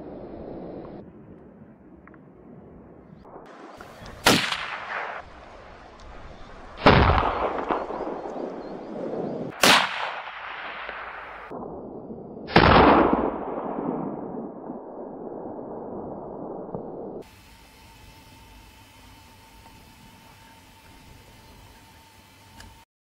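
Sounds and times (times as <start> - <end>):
rifle shots with echo: 3.3 - 5.5, 6.8 - 11.8, 12.4 - 14.7.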